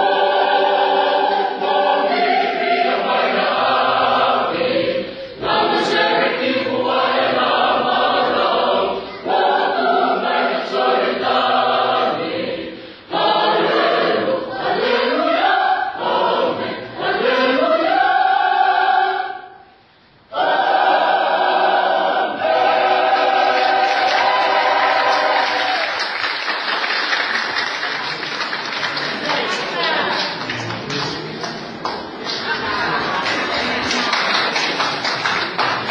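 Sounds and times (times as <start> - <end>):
choir singing in parts: 0.0 - 26.2
applause: 23.2 - 35.9.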